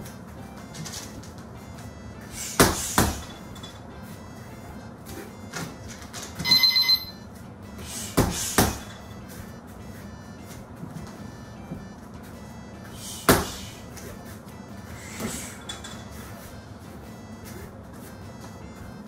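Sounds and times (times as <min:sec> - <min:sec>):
gloved punches on heavy bag: 0:02.5 - 0:03.3, 0:08.1 - 0:08.9, 0:13.2 - 0:13.8
round timer beeping: 0:03.4 - 0:07.3, 0:09.0 - 0:10.6, 0:11.2 - 0:12.9.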